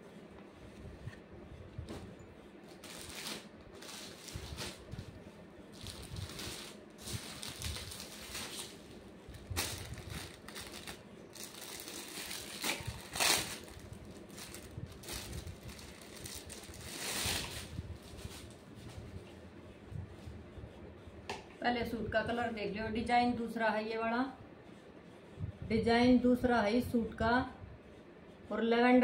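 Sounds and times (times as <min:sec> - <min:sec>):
plastic packaging crinkling: 0:02.7 - 0:05.1, 0:05.7 - 0:18.6.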